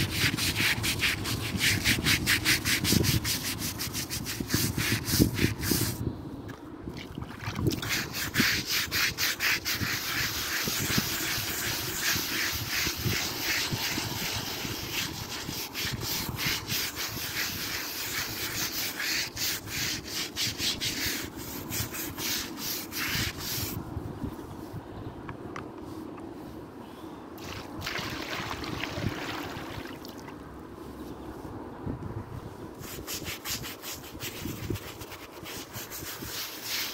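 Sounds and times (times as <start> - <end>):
brush scrubbing wet metal: 0.0 - 6.0, 7.6 - 23.7, 32.8 - 36.9.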